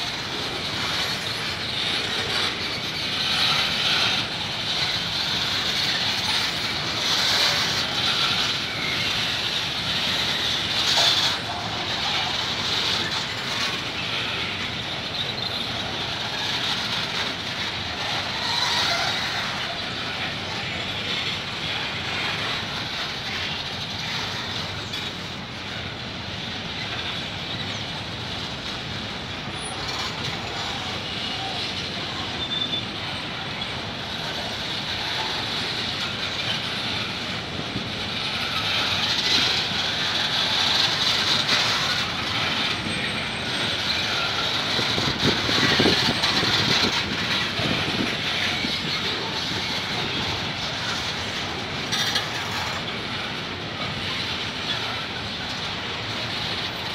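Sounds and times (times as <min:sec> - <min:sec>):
train wheels rumbling on rails: 0:00.0 - 0:56.9.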